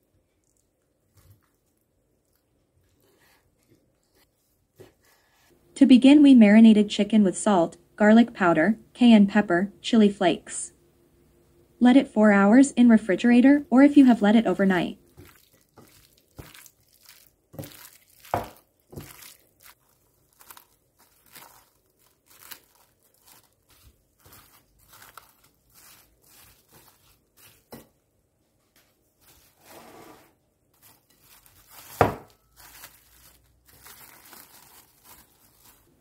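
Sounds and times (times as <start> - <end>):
hands squishing chicken pieces: 15.0 - 27.8, 30.8 - 36.0
plastic cling film crinkling: 15.0 - 27.9, 30.7 - 36.0.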